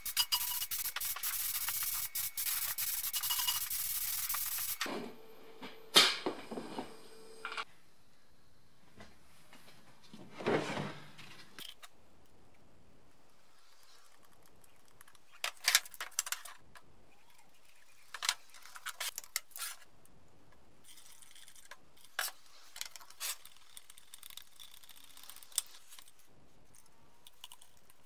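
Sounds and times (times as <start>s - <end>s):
metal tins clinking and rattling: 3.0s - 3.8s.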